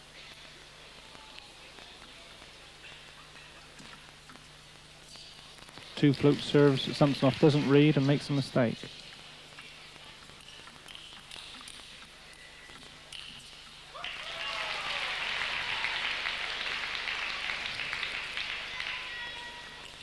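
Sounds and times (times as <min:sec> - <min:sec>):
crowd applause: 0:13.9 - 0:20.0.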